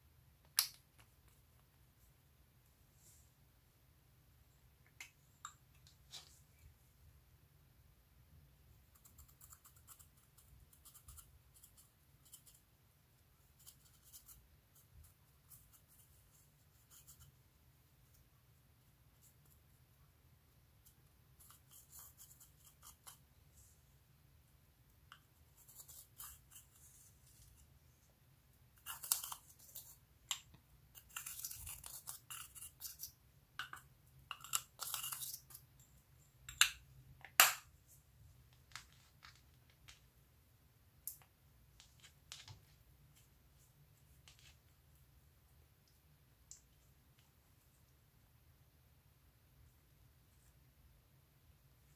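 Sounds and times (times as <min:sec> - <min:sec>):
eyeshadow scraped with small tool: 0:25.1 - 0:27.8, 0:30.9 - 0:35.6.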